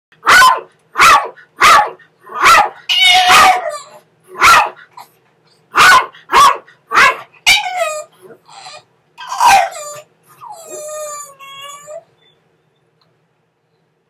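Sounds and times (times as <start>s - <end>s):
small dog barking: 0.2s - 5.1s, 5.7s - 8.1s, 9.2s - 10.1s
dog yelping cry: 0.2s - 12.2s.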